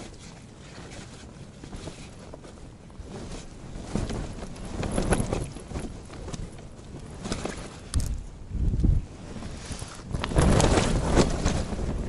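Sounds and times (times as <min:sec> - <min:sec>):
fabric flapping and crackling: 0:00.0 - 0:12.0
wind buffeting tent fabric: 0:00.0 - 0:12.0.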